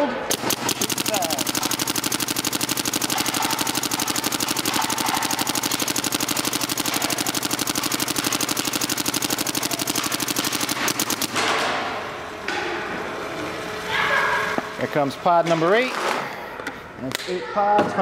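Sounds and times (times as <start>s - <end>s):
paintball marker firing: 0.3s - 11.9s.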